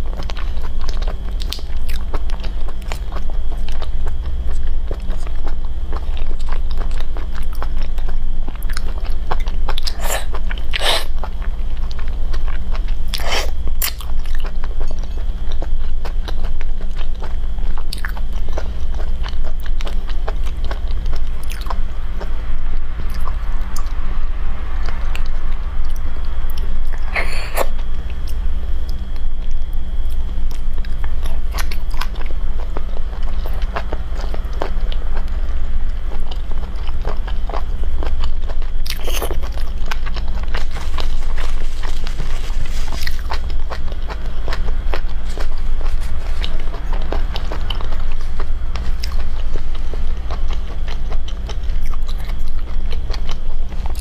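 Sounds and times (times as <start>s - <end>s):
steady low hum: 0.0s - 54.0s
wet biting and chewing: 11.8s - 21.8s, 36.1s - 54.0s.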